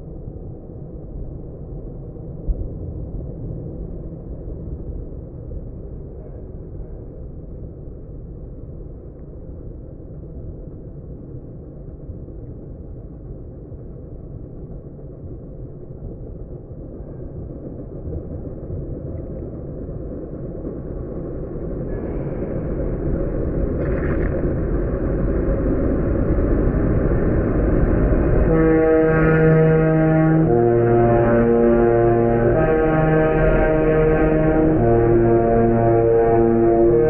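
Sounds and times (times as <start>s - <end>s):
diesel engine rumbling: 21.9s - 37.0s
deep two-tone horns: 27.9s - 37.0s.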